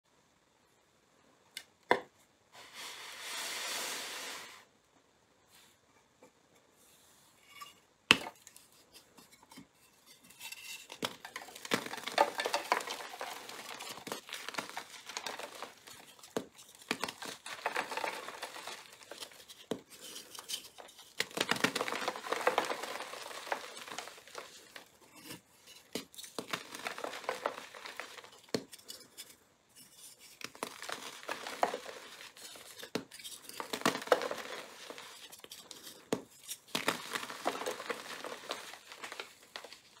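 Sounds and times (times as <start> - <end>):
sharp chalk crack: 10.4 - 40.0.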